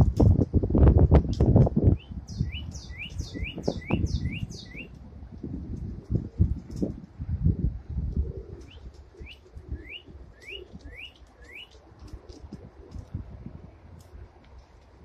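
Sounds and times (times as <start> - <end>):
songbird chirping: 2.0 - 4.9, 8.6 - 11.8
faint pigeon cooing: 8.0 - 13.4.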